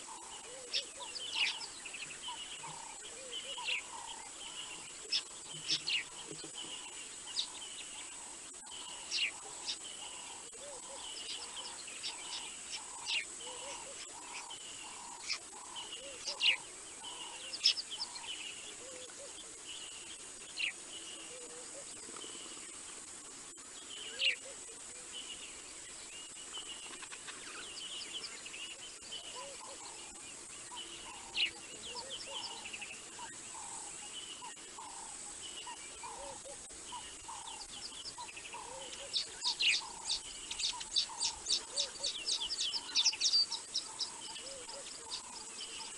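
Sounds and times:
birds chirping: 0.0s - 45.9s.

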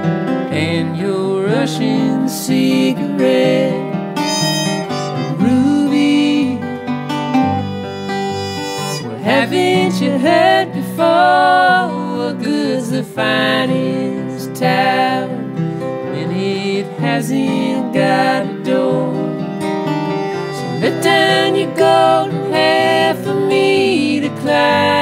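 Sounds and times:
acoustic folk band playing: 0.0s - 25.0s
acoustic guitar: 0.0s - 25.0s
sliding lead melody: 3.8s - 11.4s, 17.8s - 25.0s.

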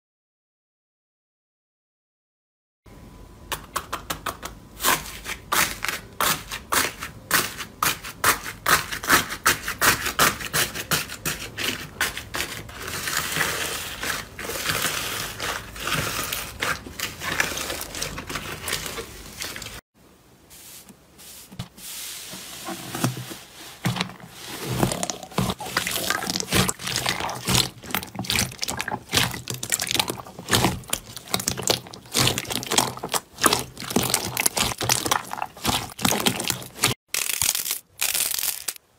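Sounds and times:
slime squelching: 11.4s - 19.8s, 21.3s - 38.8s
slime crackling and popping: 24.9s - 38.8s.

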